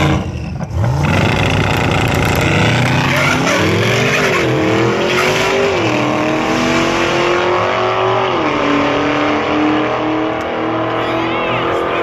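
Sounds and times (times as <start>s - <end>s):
drag racing car engines accelerating: 0.0s - 12.0s.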